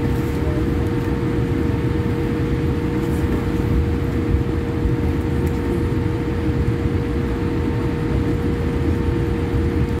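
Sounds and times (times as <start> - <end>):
jet engines idling: 0.0 - 10.0
steady low whine: 0.0 - 10.0
wheels and airflow rumble: 0.0 - 10.0.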